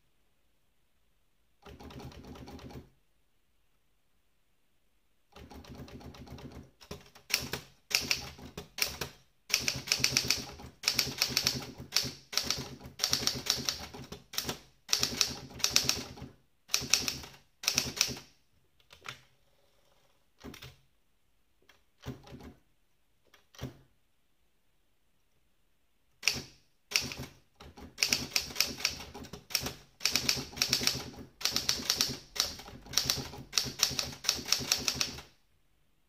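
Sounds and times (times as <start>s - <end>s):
manual typewriter key strikes: 5.4s - 18.2s, 26.2s - 35.3s.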